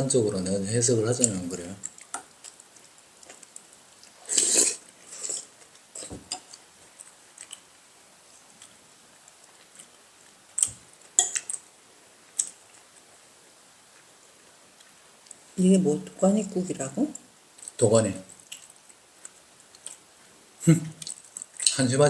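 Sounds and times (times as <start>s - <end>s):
spoons clinking on bowls: 11.2s - 11.6s.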